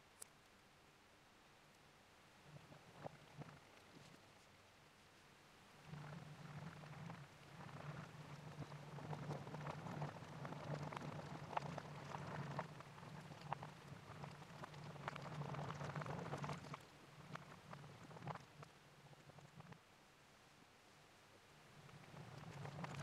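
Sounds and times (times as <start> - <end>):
steady low hum: 5.7 - 20.0.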